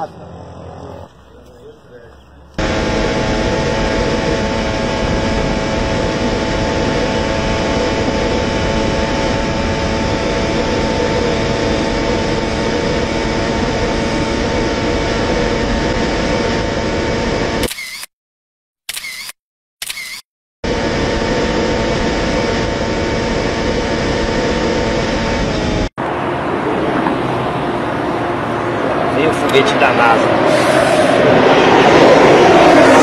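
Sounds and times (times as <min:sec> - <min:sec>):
motorcycle engine at high revs: 0:02.5 - 0:18.0
heavy wind rush: 0:02.6 - 0:17.6, 0:20.7 - 0:33.0.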